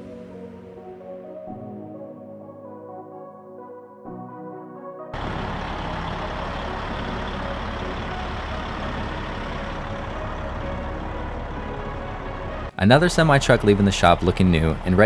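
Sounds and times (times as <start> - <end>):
background music: 0.0 - 15.0
diesel truck engine idling: 5.2 - 15.0.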